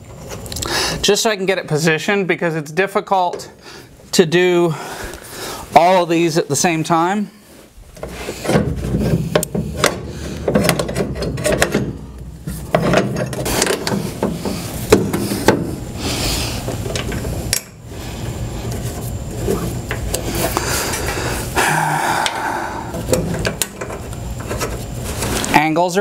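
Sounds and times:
clicks knocks and scraping: 8.0 - 15.7.

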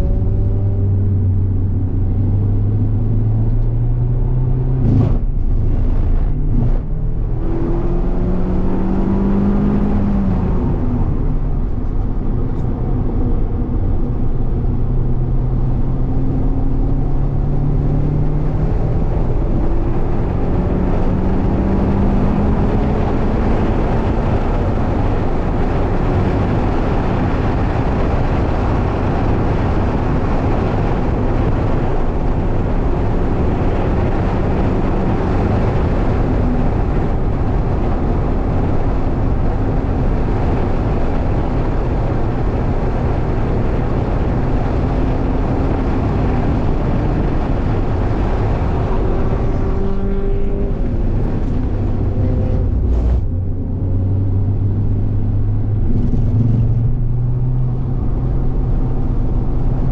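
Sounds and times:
car engine accelerating: 0.0 - 59.9
wind and tyre noise: 0.0 - 59.9.

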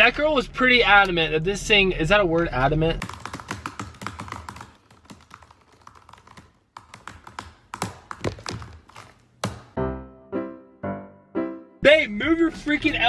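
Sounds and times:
fast typing on laptop keyboard: 3.0 - 9.6.

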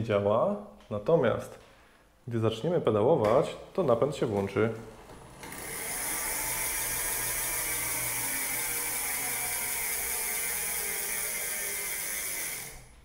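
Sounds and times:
hub motor whirring: 5.1 - 13.0.

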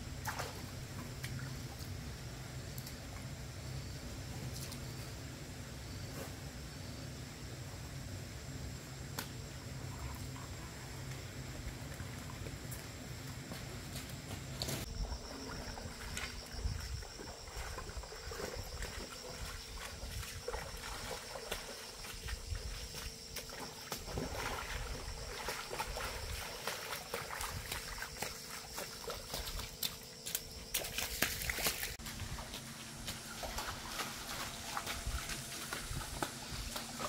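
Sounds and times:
insect buzz: 0.0 - 37.0
footsteps splashing in stream: 0.2 - 1.5, 11.6 - 37.0.

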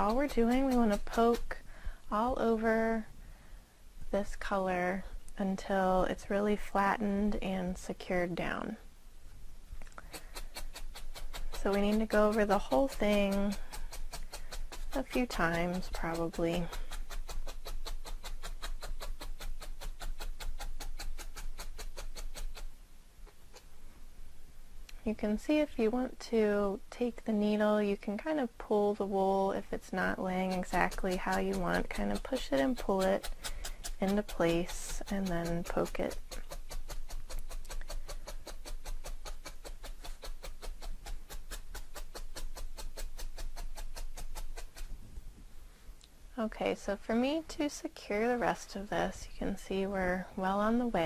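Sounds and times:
felting needle poking foam: 0.0 - 2.8, 10.0 - 23.7, 27.4 - 45.3.

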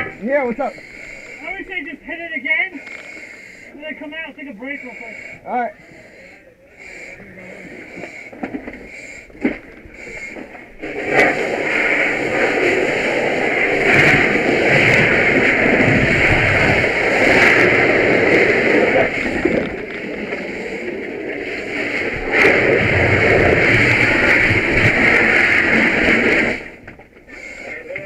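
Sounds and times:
fire hose water rushing: 6.8 - 27.9.

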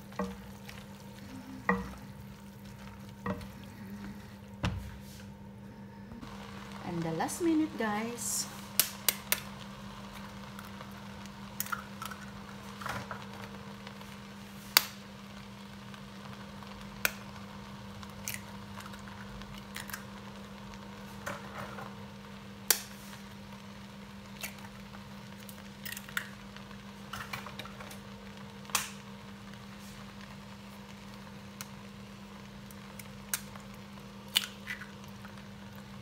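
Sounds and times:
steady low hum: 0.0 - 12.8
eggs cracking: 11.6 - 12.5, 18.1 - 20.2, 25.4 - 26.4, 32.9 - 35.9.

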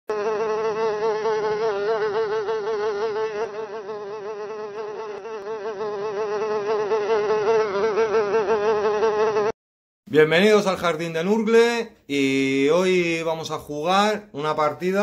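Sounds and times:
fly buzzing: 0.1 - 9.6.

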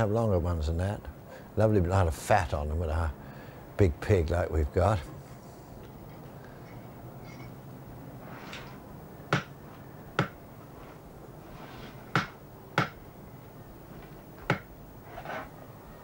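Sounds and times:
cleaver chopping on wooden board: 9.3 - 9.5, 12.1 - 13.0.

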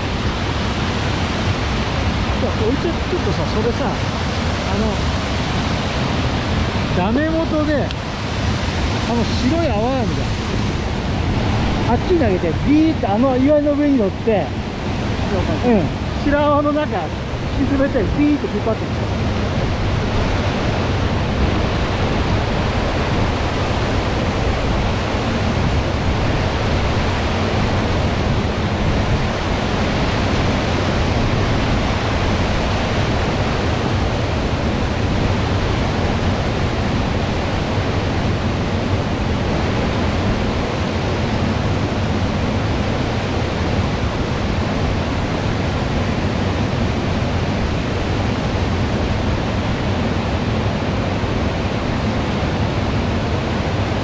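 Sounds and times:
stream rushing over rocks: 0.0 - 54.0.

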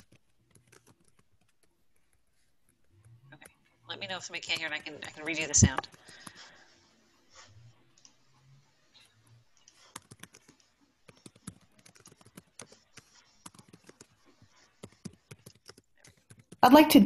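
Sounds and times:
computer keys typing: 0.0 - 1.7, 9.6 - 16.6.

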